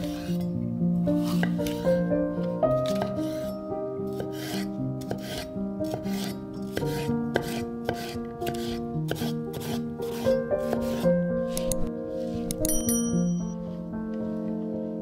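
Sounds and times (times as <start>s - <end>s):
background music with held notes: 0.0s - 15.0s
knife chopping on wooden board: 4.2s - 11.0s.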